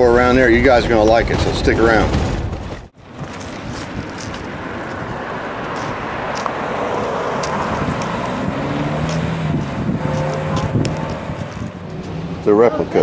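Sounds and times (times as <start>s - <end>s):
low engine hum: 3.0s - 13.0s
car driving past: 4.4s - 13.0s.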